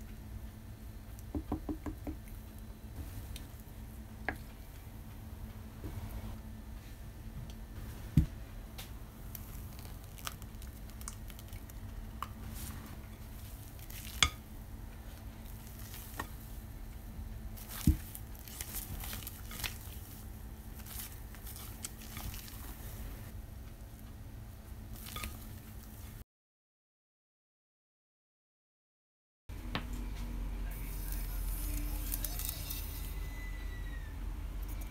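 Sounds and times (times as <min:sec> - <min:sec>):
spatula folding batter in bowl: 0:15.1 - 0:16.6, 0:17.6 - 0:23.3.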